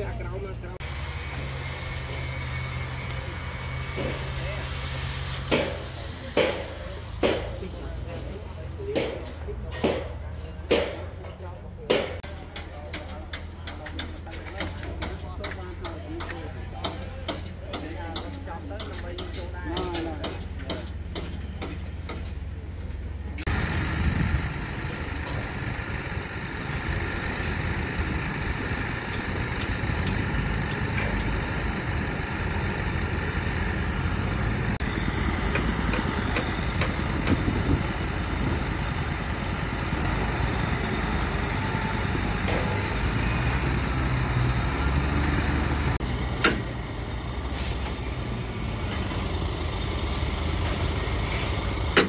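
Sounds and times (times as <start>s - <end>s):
diesel engine running: 0.0s - 10.8s, 20.9s - 52.0s
high whine: 23.5s - 49.1s.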